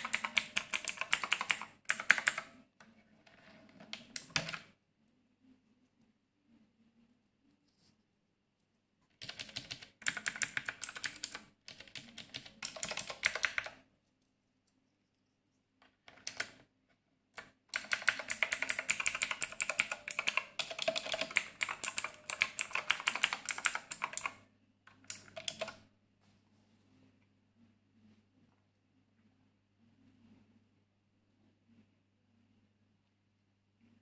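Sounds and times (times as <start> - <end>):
mechanical keyboard typing clicks: 0.0 - 2.5, 3.8 - 4.7, 9.2 - 13.8, 16.0 - 16.6, 17.4 - 25.8.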